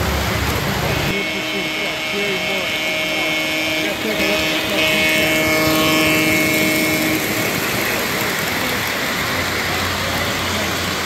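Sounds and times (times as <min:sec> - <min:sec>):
model train locomotive humming: 0:00.0 - 0:11.0
metal wheels rolling on track: 0:03.9 - 0:11.0.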